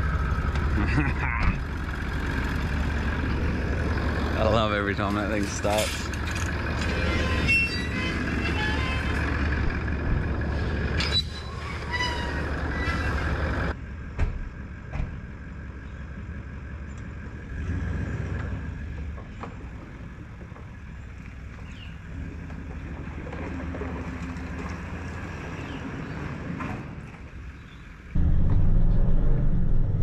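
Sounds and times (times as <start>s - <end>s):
vehicle engine rumbling: 0.0s - 30.0s
wire gate and chain rattling: 5.0s - 7.9s.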